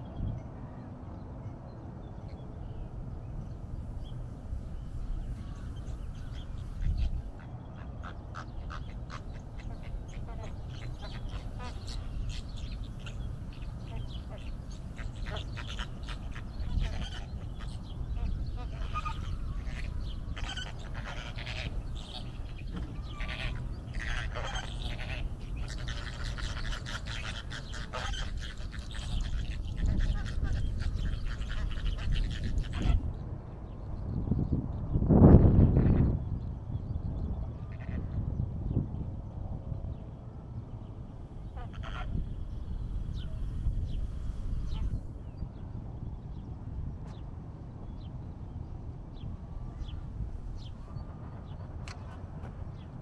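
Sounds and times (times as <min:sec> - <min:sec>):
steady low rumble: 0:02.6 - 0:53.0
flamingos honking: 0:04.8 - 0:33.1, 0:41.5 - 0:45.0.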